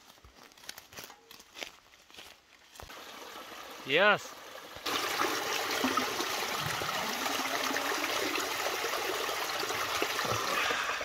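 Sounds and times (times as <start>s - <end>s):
spring water trickling over rocks: 2.8s - 11.0s
water pouring into plastic bottle: 4.8s - 11.0s.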